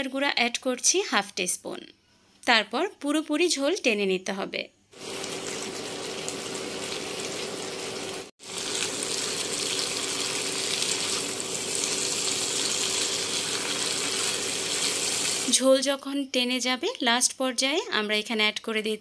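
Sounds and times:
filling sizzling in a frying pan: 5.0s - 15.6s
spatula stirring: 8.6s - 15.5s.

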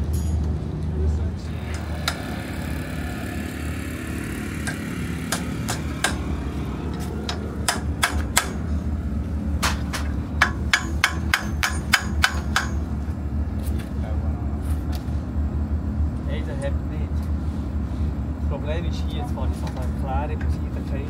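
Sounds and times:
steady low hum: 0.6s - 21.0s
hammer striking metal hub: 7.2s - 8.7s, 9.6s - 13.0s.

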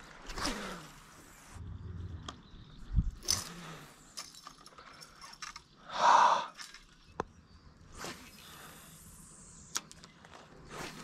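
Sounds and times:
fishing line hissing off reel: 7.9s - 9.8s.

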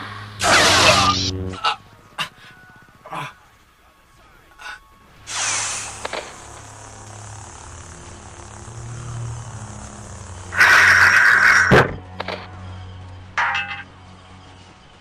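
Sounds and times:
lightsaber humming with hiss: 0.0s - 15.0s
lightsaber swing: 0.4s - 1.6s, 9.6s - 12.0s.

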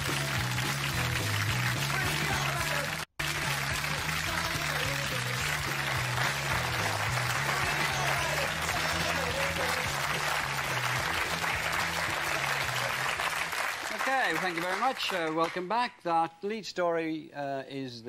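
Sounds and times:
theme music with bass notes: 0.0s - 13.6s
studio audience applauding: 0.0s - 15.8s.

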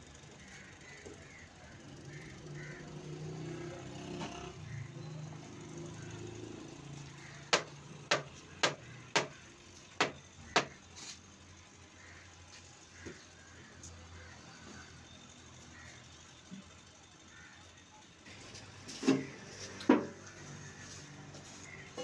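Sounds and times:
sharp knocks: 7.5s - 9.4s, 10.0s - 10.8s.

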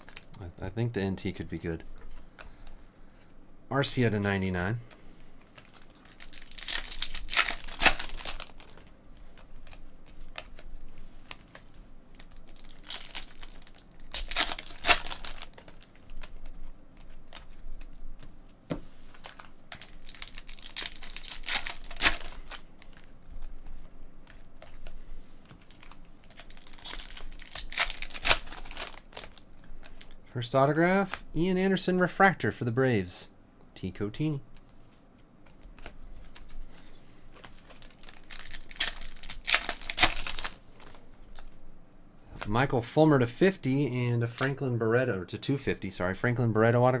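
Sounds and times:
foil wrappers crinkling and tearing: 0.0s - 0.5s, 5.5s - 18.0s, 19.0s - 30.2s, 36.2s - 41.5s.

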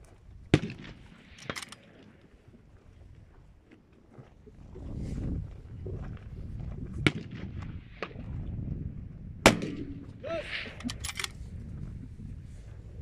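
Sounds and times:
rifle shots: 0.5s - 2.0s, 9.4s - 10.2s.

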